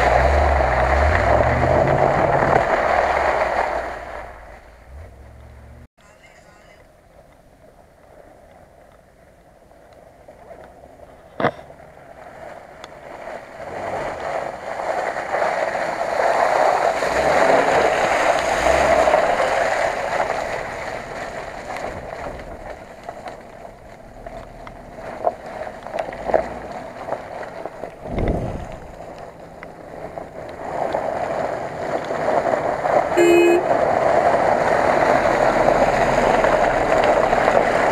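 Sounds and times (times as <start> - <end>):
tyres churning through mud: 0.0 - 5.9, 10.1 - 37.9
vehicle engine driving past: 0.0 - 5.9.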